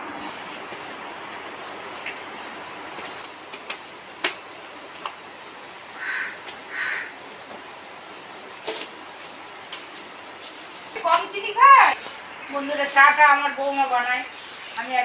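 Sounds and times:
crow cawing: 6.0s - 7.2s.

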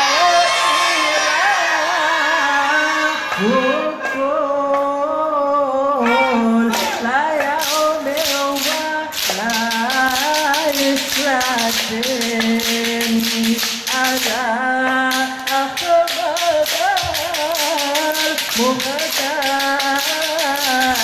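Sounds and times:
men singing devotional melody: 0.0s - 21.0s
hand clapping: 6.7s - 21.0s.

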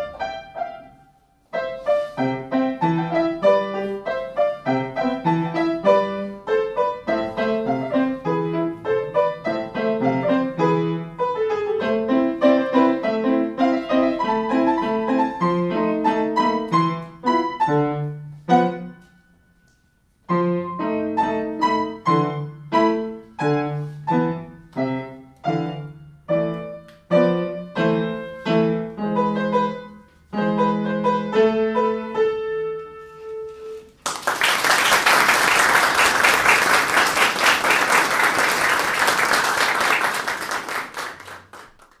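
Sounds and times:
grand piano chords: 0.0s - 33.5s
audience applause: 34.0s - 42.0s.

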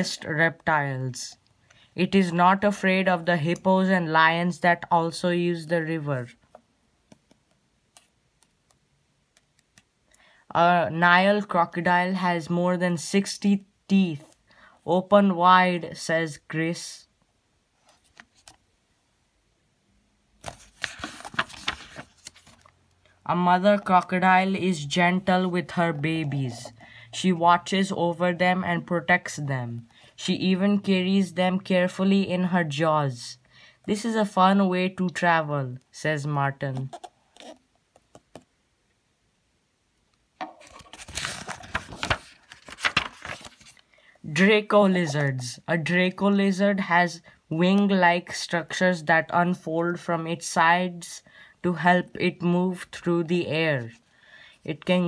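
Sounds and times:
paper page rustling: 20.4s - 22.8s, 40.5s - 43.9s.

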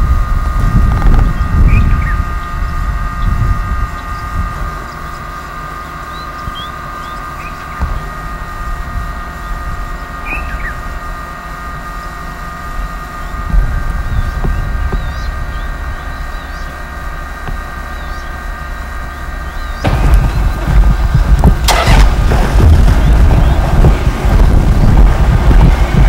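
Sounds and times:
steady high hum: 0.0s - 26.0s
wind rumbling on microphone: 0.0s - 26.0s.

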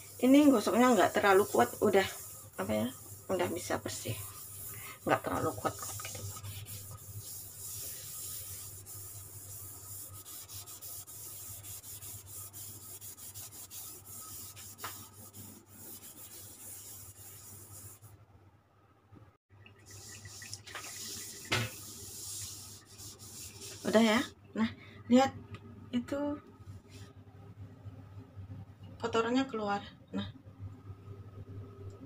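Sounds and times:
scouring pad scrubbing countertop: 0.0s - 18.1s, 19.9s - 24.3s.

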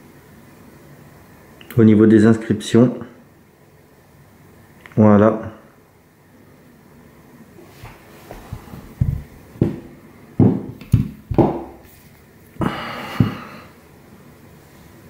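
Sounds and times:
revolver knocking on table: 9.0s - 9.8s, 10.4s - 11.8s.

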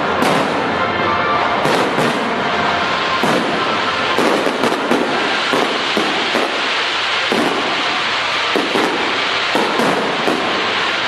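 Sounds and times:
fireworks crackle: 0.0s - 11.0s
fireworks shells bursting: 1.6s - 11.0s.

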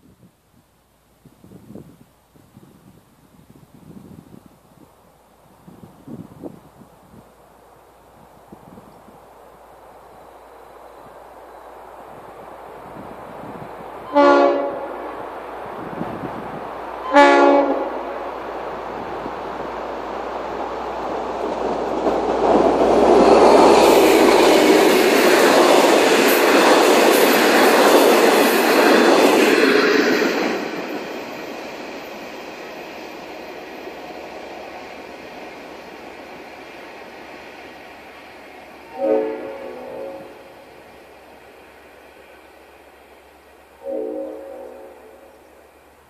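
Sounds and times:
train wheels on rails: 1.2s - 46.0s
train horn blasts: 14.0s - 15.3s, 17.0s - 18.4s, 38.9s - 40.7s, 43.8s - 45.4s.

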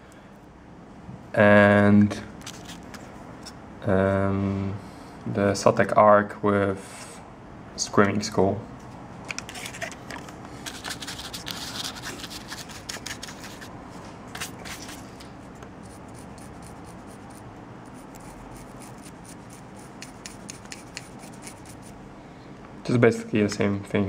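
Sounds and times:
paintbrush scratching plastic: 2.4s - 3.0s, 9.5s - 10.0s, 10.6s - 13.7s, 14.3s - 15.1s, 15.8s - 22.0s.

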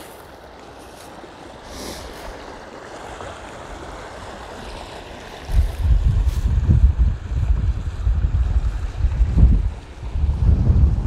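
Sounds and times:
wind buffeting the microphone: 5.3s - 11.0s.

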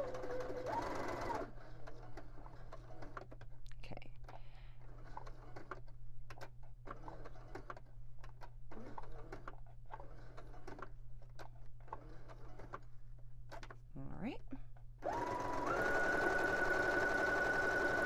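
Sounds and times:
sewing machine stitching: 0.0s - 3.4s, 8.7s - 12.9s, 15.0s - 18.0s.

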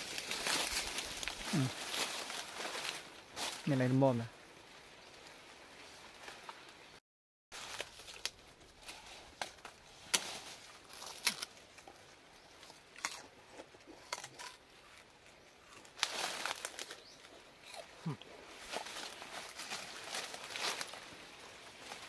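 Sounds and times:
crunching sugarcane: 0.0s - 3.8s, 7.6s - 22.0s
sugarcane rind snapping and tearing: 7.6s - 12.0s, 12.6s - 21.0s.

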